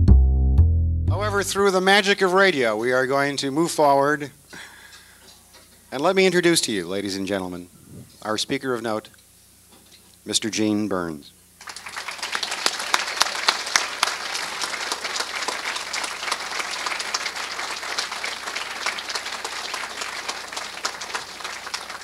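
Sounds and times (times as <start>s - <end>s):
audience applauding: 11.6s - 22.0s.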